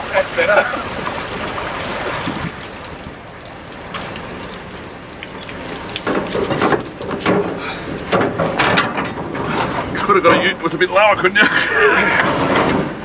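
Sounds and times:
knocks and clatter: 0:05.2 - 0:10.4, 0:12.2 - 0:13.0.

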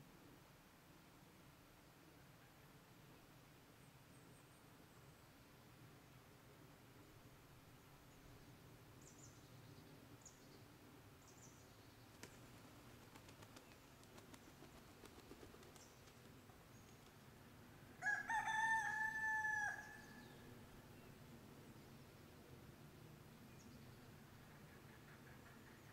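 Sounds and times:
rooster crowing: 0:18.0 - 0:20.1.

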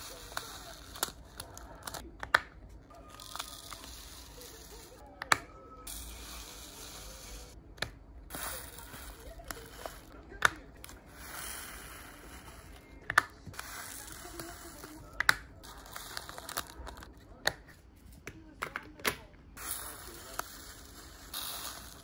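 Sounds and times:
beads pouring into plastic case: 0:08.3 - 0:10.1, 0:10.8 - 0:12.7, 0:19.6 - 0:22.0.

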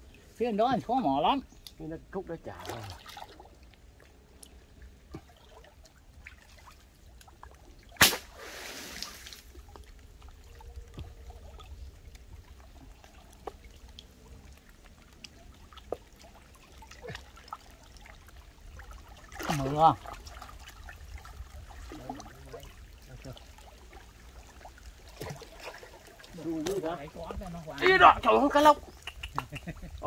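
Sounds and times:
shallow water trickling: 0:00.0 - 0:30.0
rush of water: 0:01.8 - 0:30.0
sharp water splash: 0:02.5 - 0:03.5, 0:07.8 - 0:09.6, 0:18.8 - 0:27.0.

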